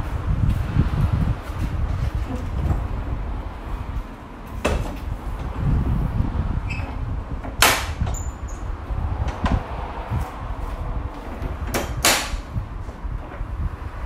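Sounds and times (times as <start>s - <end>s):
low rumble: 0.0s - 14.0s
tailgate knock: 4.6s - 5.1s
tailgate latching clunk: 4.6s - 5.2s, 11.4s - 12.5s.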